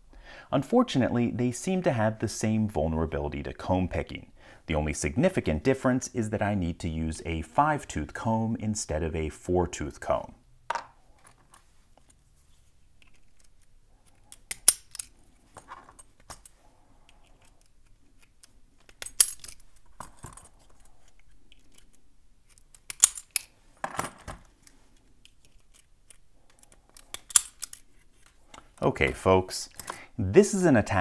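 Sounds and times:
metallic clicks of lock picking: 13.0 - 15.2, 16.0 - 23.5, 24.6 - 28.4
padlock shackles popping open: 13.0 - 15.2, 16.0 - 28.4
keys jingling: 18.9 - 24.5, 25.3 - 28.3.

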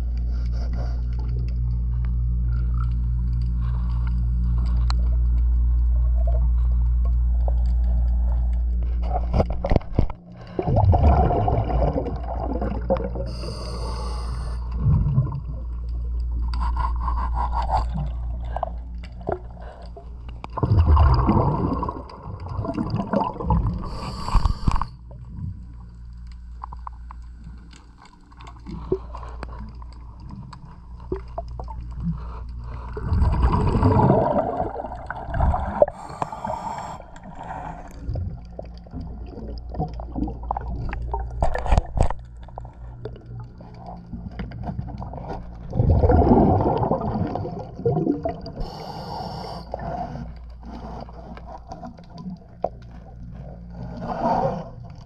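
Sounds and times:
steady low hum: 0.0 - 55.0
gush of bubbles: 10.4 - 13.3, 20.5 - 24.8, 33.0 - 36.1, 45.7 - 48.6
diver breathing through regulator: 13.2 - 14.8, 16.4 - 20.2, 23.7 - 25.1, 35.2 - 38.2, 48.5 - 51.8, 53.7 - 54.8.

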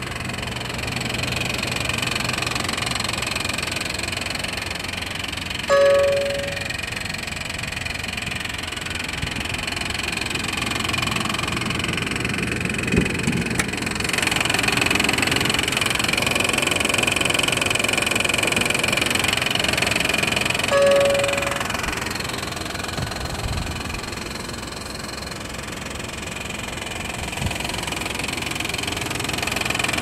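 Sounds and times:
car engine idling with knocking: 0.0 - 30.0
short beep: 5.7 - 6.8, 20.7 - 21.7.

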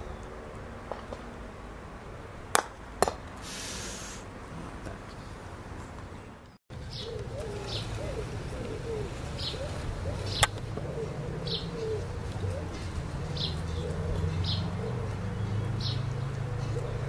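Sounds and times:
sharp crack: 2.5 - 4.1
birds chirping: 3.5 - 17.0.

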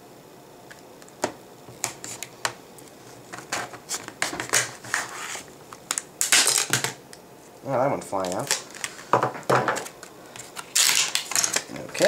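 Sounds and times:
plastic packaging clicks and crackles: 5.7 - 7.0, 8.2 - 12.0.

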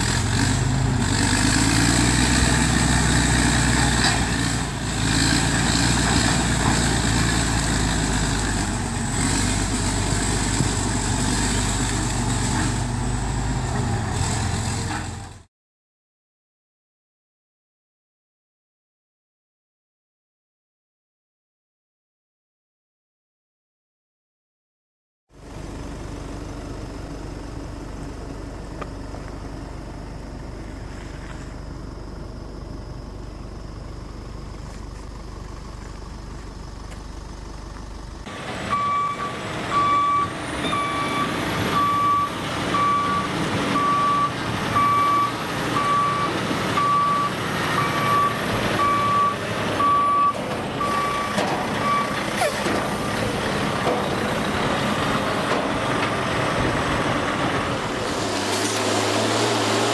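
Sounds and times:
truck engine running: 0.0 - 15.5, 25.4 - 59.9
reversing alarm beeping: 38.7 - 53.3.

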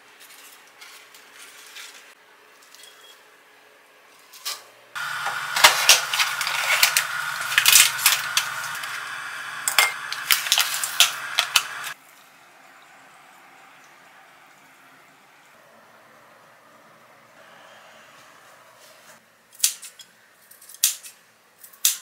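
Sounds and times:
plastic packet crinkling: 5.0 - 9.2, 9.8 - 12.0
steady hum: 5.0 - 12.0.

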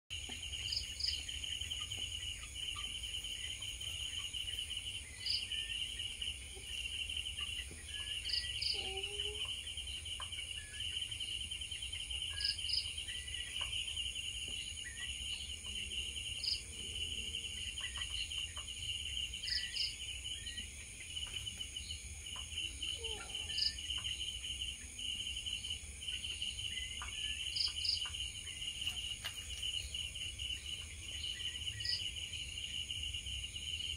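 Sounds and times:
insects trilling: 0.2 - 33.9.

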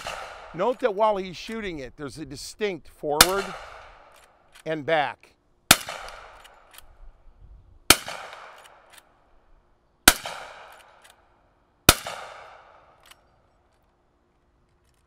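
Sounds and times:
rifle shots echoing: 0.0 - 1.8, 3.1 - 4.6, 5.7 - 7.0, 7.9 - 9.2, 10.0 - 13.2
rifle lever metallic clicks: 6.0 - 6.9, 13.0 - 13.9.

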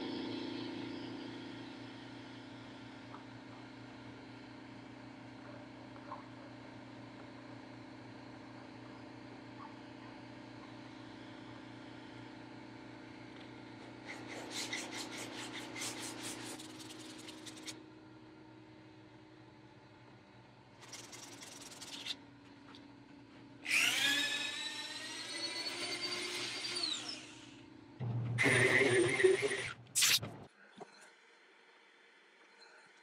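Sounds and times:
low machine hum: 0.0 - 33.0
hand rubbing wooden bowl: 14.2 - 17.8.

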